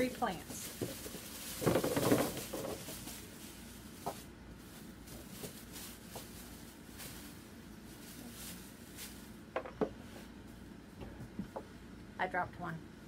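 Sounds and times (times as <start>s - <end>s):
plastic bag rustling: 0.0s - 9.6s.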